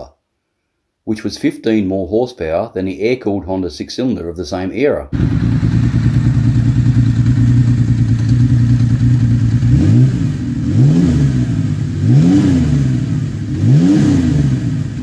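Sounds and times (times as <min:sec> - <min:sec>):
motorcycle engine idling and revving: 0:05.2 - 0:15.0.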